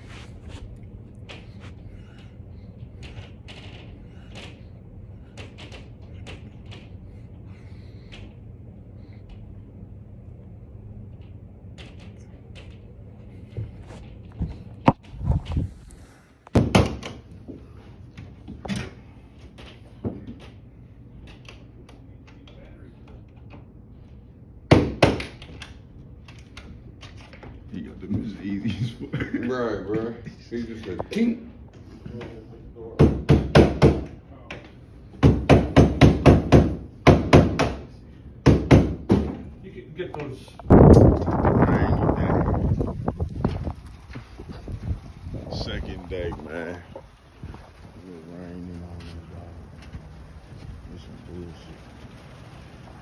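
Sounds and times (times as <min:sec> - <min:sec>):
hammer knocking on door hinge: 0:35.2 - 0:37.8.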